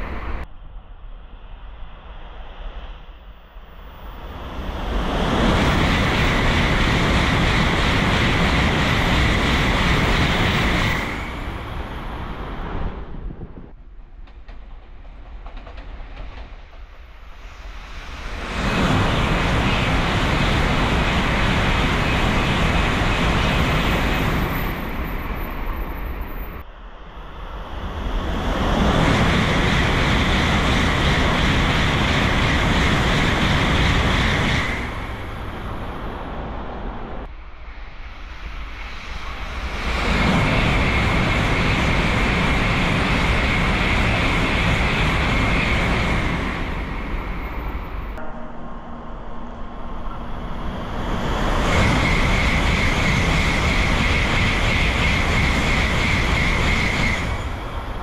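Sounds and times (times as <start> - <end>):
high-speed trains passing: 0.0 - 58.0
steady high whine: 17.4 - 58.0.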